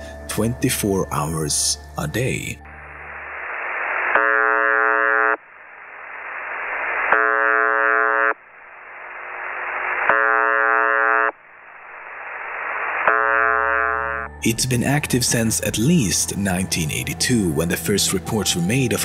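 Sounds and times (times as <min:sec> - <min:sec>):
shortwave static hiss: 0:02.2 - 0:16.8
monotonous buzz tone: 0:02.6 - 0:14.4.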